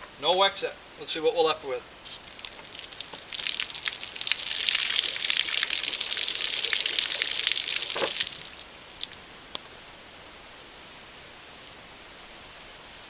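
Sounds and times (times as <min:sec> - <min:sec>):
water pouring from plastic jug: 0:02.2 - 0:08.6.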